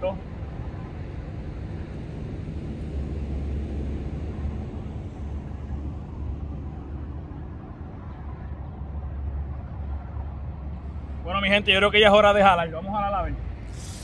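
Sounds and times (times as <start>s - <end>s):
highway traffic rumble: 0.0s - 14.0s.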